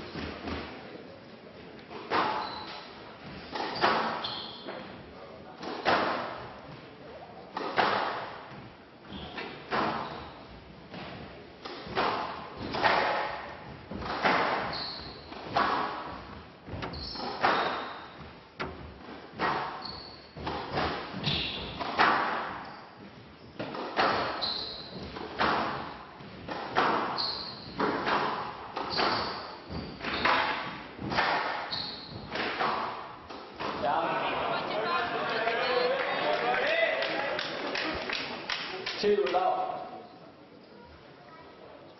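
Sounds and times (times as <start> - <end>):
court shoes squeaking: 0.0 - 1.2, 1.8 - 5.0, 7.4 - 33.9.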